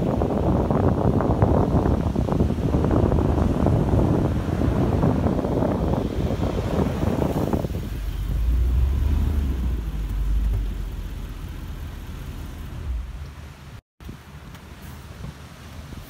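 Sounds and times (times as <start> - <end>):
wind buffeting microphone: 0.0 - 14.3
car driving on sand: 0.0 - 16.0.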